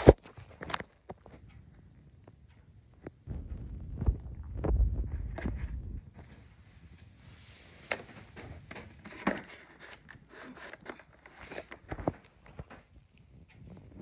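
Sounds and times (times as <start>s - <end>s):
bedding rustling: 5.1s - 12.9s.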